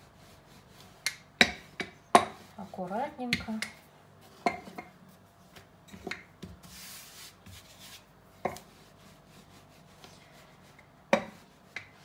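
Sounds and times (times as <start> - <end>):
rolling pin rubbing dough: 0.0 - 3.4, 6.4 - 12.0.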